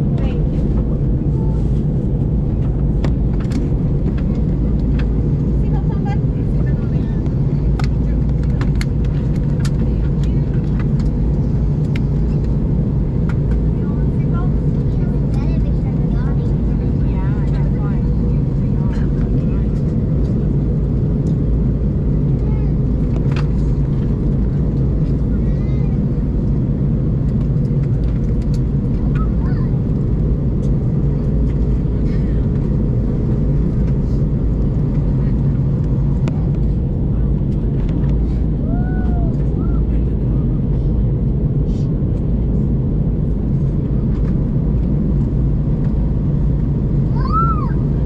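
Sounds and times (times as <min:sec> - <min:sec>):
airplane cabin rumble: 0:00.0 - 0:48.0.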